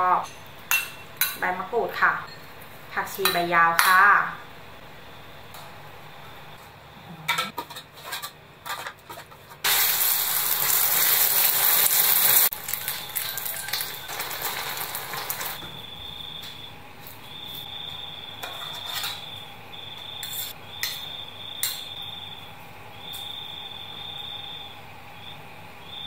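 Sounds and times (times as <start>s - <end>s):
egg sizzling in hot oil: 9.6s - 15.6s.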